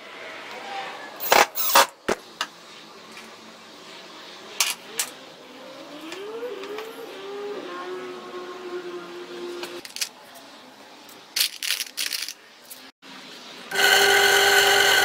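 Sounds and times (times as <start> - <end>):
small metal parts clinking: 9.8 - 10.2, 11.4 - 12.9.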